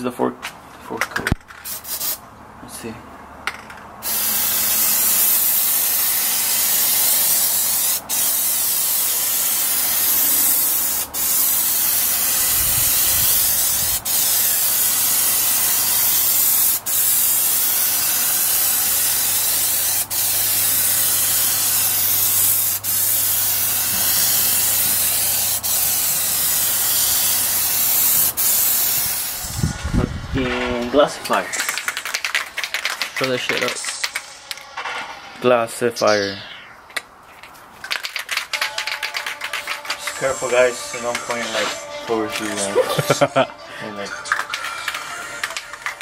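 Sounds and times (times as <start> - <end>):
aerosol spray can hissing: 1.7 - 2.2, 4.0 - 29.7, 31.6 - 34.2, 37.9 - 40.2.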